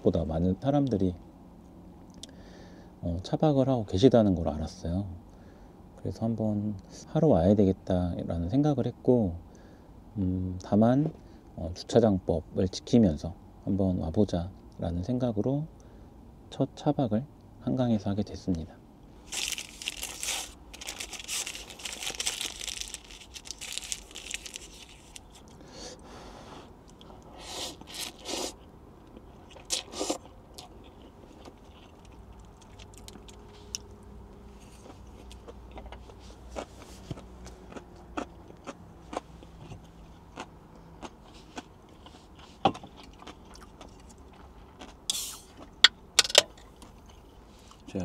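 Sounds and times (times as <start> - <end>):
food wrapping crinkling and tearing: 19.2 - 25.6, 27.7 - 28.4, 30.9 - 33.8.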